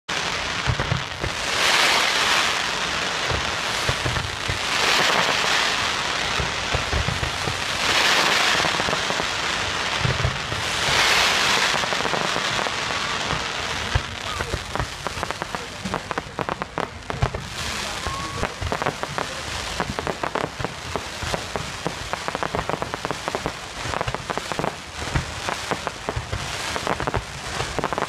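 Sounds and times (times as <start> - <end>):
fireworks hissing: 0.1 - 28.0
firework launch thumps: 3.2 - 5.3, 10.0 - 11.0, 25.1 - 25.5.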